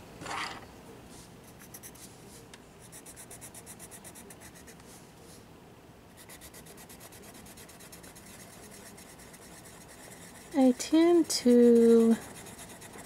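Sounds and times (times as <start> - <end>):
pencil scratching on paper: 1.4 - 2.2, 2.8 - 4.8, 6.2 - 13.0.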